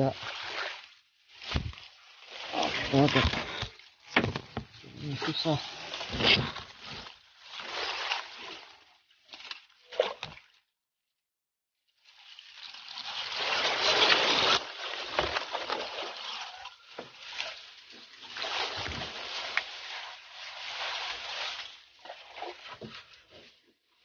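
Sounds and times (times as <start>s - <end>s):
splashing steps in water: 12.6s - 23.1s
grass swishing: 13.2s - 16.5s, 17.4s - 22.7s.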